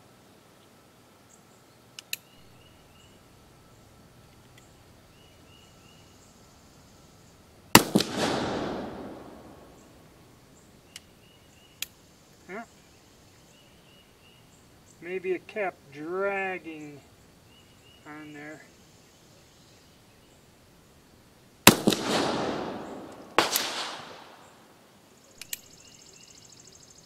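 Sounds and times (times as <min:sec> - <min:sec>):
revolver shot with echo: 0:07.8 - 0:09.9, 0:21.7 - 0:24.5
revolver hammer cocking clicks: 0:21.7 - 0:24.4, 0:25.4 - 0:25.7.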